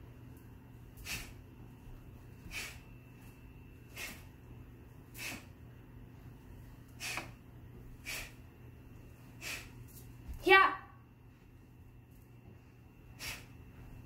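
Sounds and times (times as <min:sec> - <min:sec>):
faint steady hum: 0:00.0 - 0:14.0
sharp breaths through nose: 0:01.0 - 0:01.4, 0:02.4 - 0:02.9, 0:03.9 - 0:04.3, 0:05.1 - 0:05.6, 0:06.9 - 0:07.4, 0:08.0 - 0:08.4, 0:09.3 - 0:09.8, 0:13.1 - 0:13.6.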